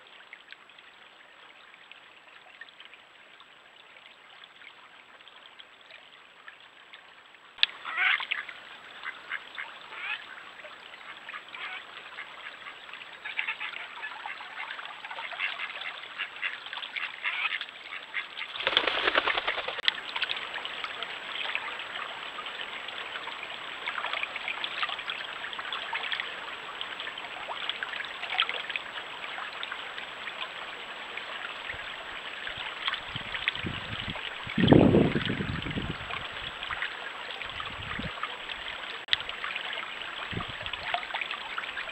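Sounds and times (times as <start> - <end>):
stream rushing: 18.6 - 28.2.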